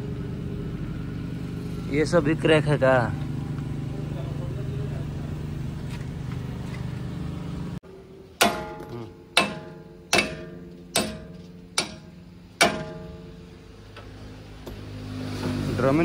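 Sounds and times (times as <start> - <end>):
hammer striking steel: 8.2 - 14.1.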